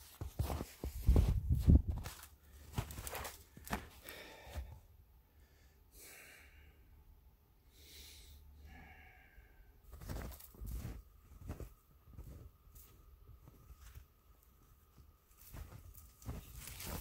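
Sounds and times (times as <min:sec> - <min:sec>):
man breathing out: 0:04.0 - 0:04.8, 0:05.5 - 0:06.9.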